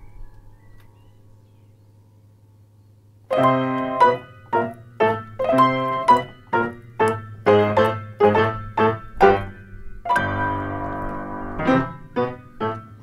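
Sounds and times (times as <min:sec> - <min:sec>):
faint low hum: 0:00.0 - 0:13.0
ragtime piano: 0:03.3 - 0:13.0.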